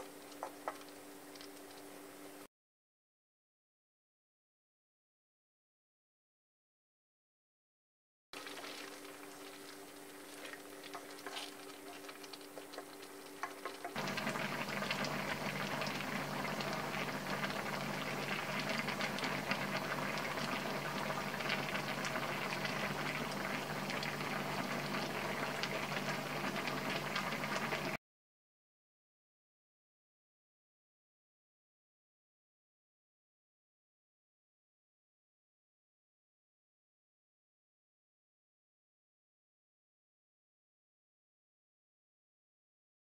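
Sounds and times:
broth bubbling in a wok: 0.0 - 2.5, 8.4 - 28.0.

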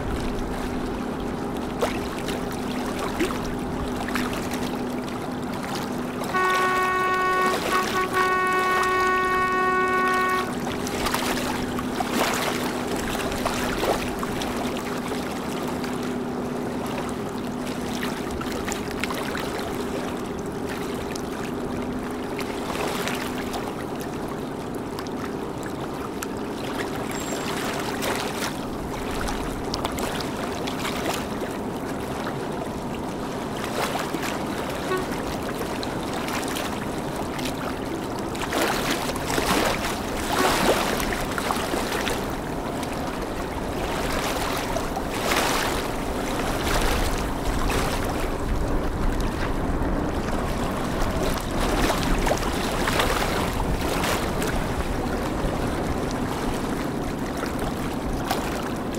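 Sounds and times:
boat diesel engine running: 0.0 - 58.9
river water wash: 0.0 - 58.9
vessel horn: 6.2 - 12.4, 34.8 - 35.5, 40.2 - 41.0.

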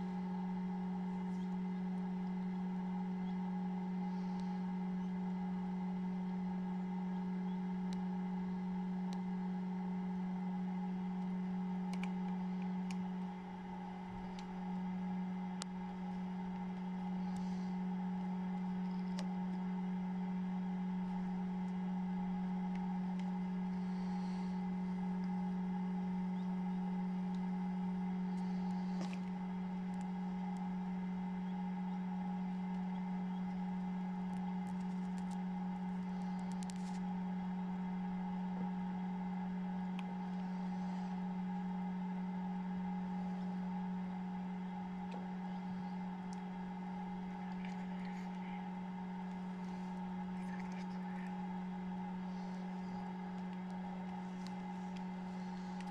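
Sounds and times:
incubator fan motor hum: 0.0 - 55.9.

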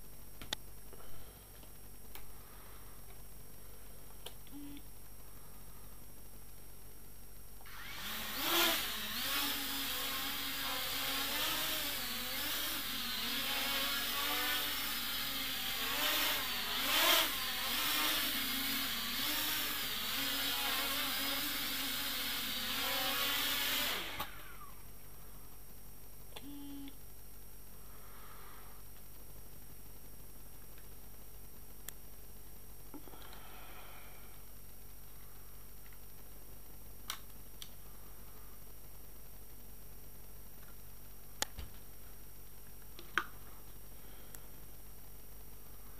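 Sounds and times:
quadcopter motors whining: 7.7 - 24.8.

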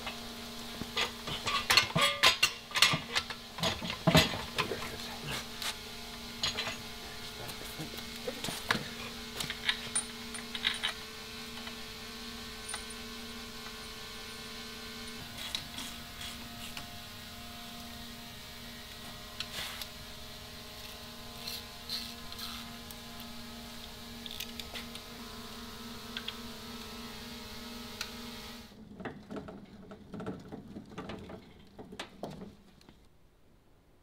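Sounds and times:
steady electrical hum: 0.0 - 28.8
metal clanks and knocks: 1.0 - 4.9, 6.4 - 7.0, 28.8 - 32.7.

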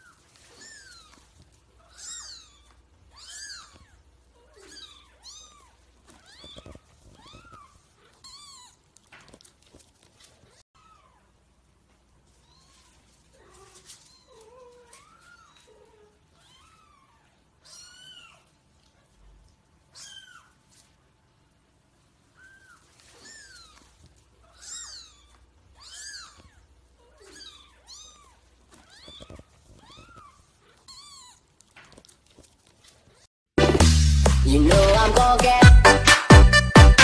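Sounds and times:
kittens mewing: 0.0 - 9.1, 12.3 - 19.2, 19.8 - 20.7, 22.2 - 32.1.

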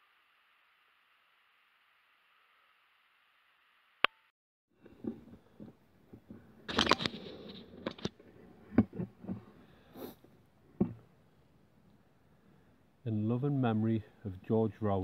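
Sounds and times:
knocks and taps: 10.8 - 11.0.

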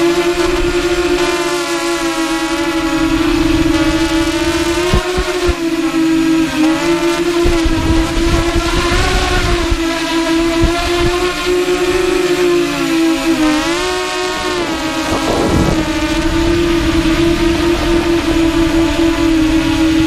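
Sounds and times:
drone motors whining: 0.0 - 20.0
wind rumble on microphone: 0.0 - 20.0.

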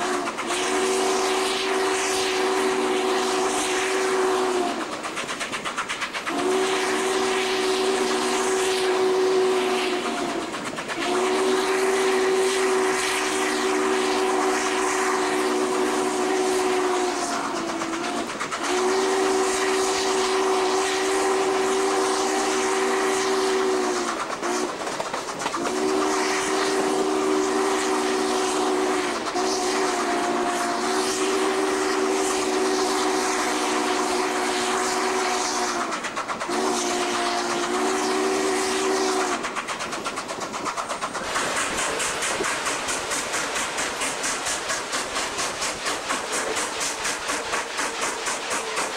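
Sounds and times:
steam whistle blasts: 0.0 - 5.0, 6.3 - 24.7, 25.6 - 39.6
steam locomotive running: 0.0 - 48.9.

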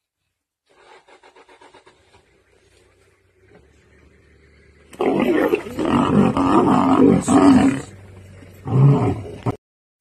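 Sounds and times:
lioness snarling and roaring: 4.9 - 9.6.

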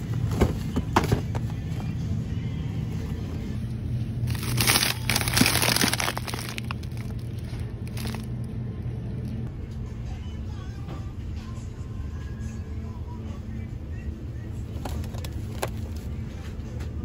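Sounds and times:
steady low hum: 0.0 - 17.0
plastic bag crinkling: 4.3 - 8.3.

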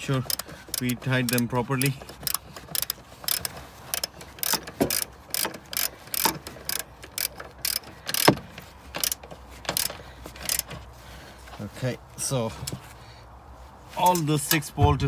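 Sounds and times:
ratchet wrench clicking: 0.0 - 8.4, 9.0 - 10.7.

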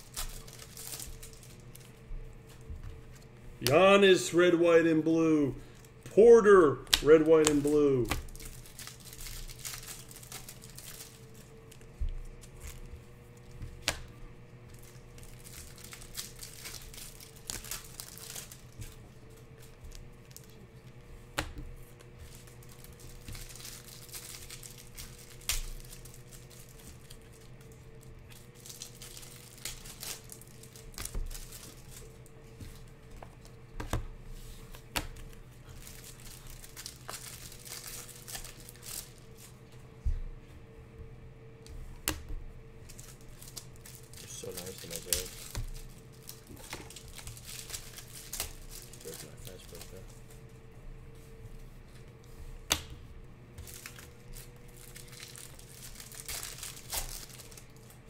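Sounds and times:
plastic sleeve crinkling: 0.0 - 21.1, 21.7 - 33.6, 34.3 - 39.7, 42.8 - 50.5, 53.6 - 58.0
low electrical hum: 0.0 - 58.0.

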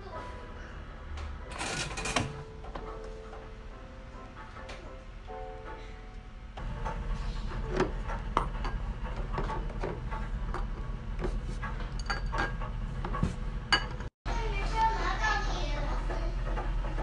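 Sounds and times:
steady low hum: 6.2 - 17.0.

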